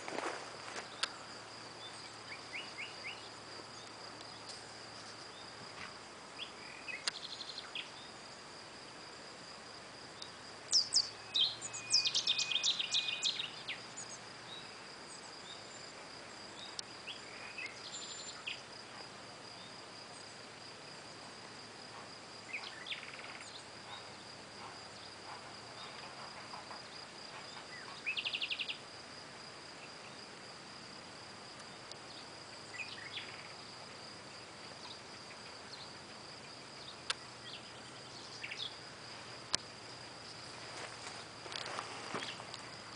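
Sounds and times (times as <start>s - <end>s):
high insect trill: 0.0s - 42.9s
bird calls and song: 1.8s - 5.6s, 6.4s - 8.2s, 10.2s - 15.9s, 16.5s - 18.7s, 22.4s - 28.8s, 31.7s - 33.7s, 34.5s - 38.8s, 42.1s - 42.6s.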